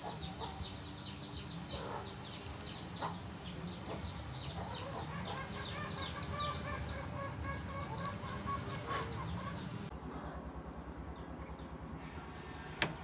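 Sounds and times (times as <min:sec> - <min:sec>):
chickens clucking: 0:00.0 - 0:09.9.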